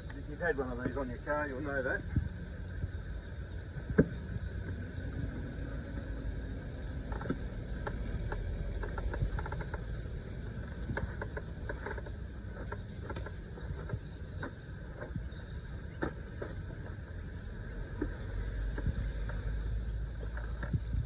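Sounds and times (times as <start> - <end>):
steady low rumble: 0.0 - 21.0.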